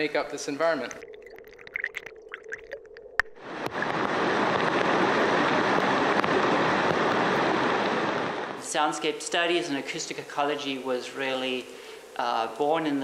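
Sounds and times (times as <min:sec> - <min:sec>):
creek water rushing: 0:03.4 - 0:08.8.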